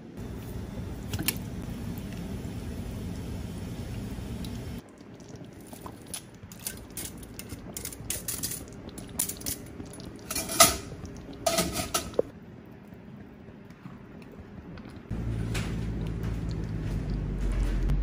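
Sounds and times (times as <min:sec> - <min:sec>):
metal basket clinking against pan: 0:10.3 - 0:10.9, 0:11.5 - 0:12.2.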